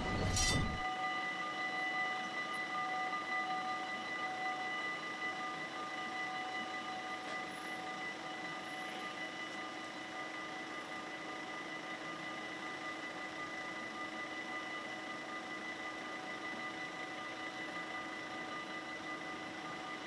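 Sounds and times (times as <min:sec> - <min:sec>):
level-crossing warning bells ringing: 0:00.0 - 0:11.8.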